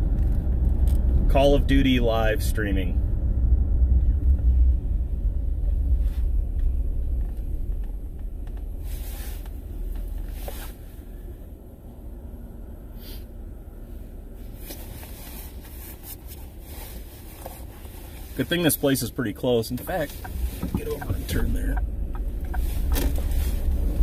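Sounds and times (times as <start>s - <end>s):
car interior rumble: 0.0s - 24.0s
faint scuffs: 8.6s - 11.0s.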